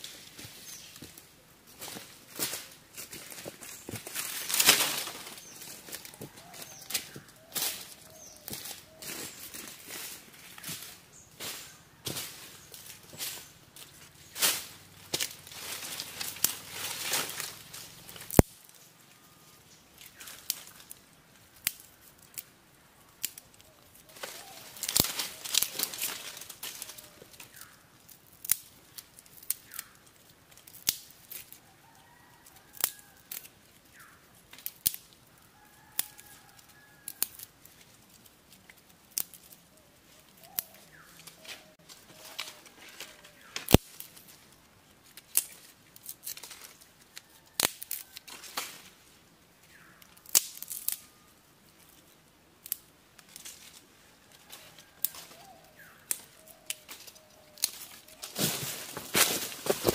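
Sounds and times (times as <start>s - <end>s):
dry sticks snapping: 12.8s - 18.8s, 20.0s - 31.6s, 32.5s - 35.3s, 35.9s - 48.9s, 49.6s - 53.8s, 54.5s - 59.9s.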